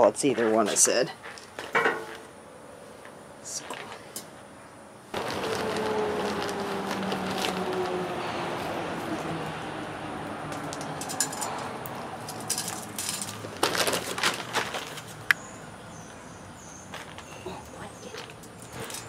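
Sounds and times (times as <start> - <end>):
plastic bag rustling: 5.1 - 8.1, 12.6 - 15.2
bird chirping: 15.2 - 19.0.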